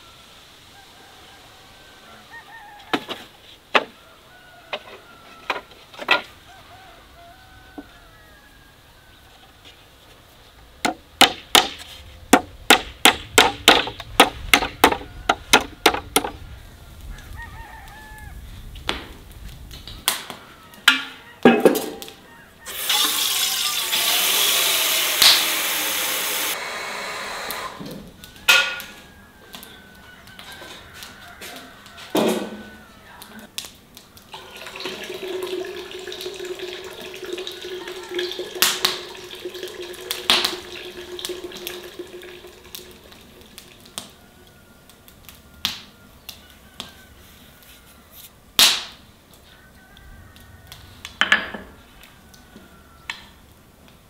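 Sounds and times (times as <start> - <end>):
water pouring: 22.7 - 27.8, 34.3 - 44.0.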